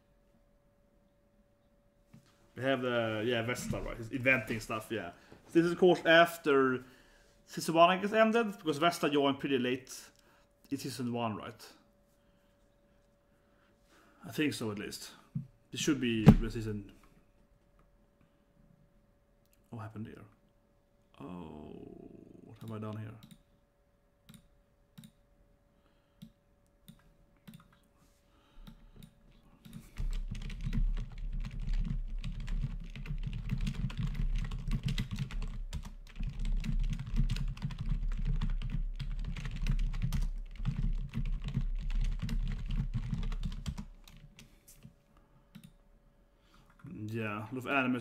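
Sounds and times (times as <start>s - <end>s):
typing on computer keyboard: 26.9s - 27.8s, 28.6s - 44.5s.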